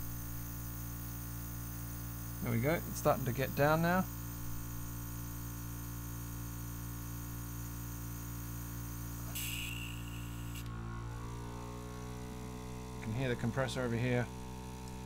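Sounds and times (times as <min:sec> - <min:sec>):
compressor electrical hum: 0:00.0 - 0:15.0
airbrush air hiss: 0:08.8 - 0:10.7.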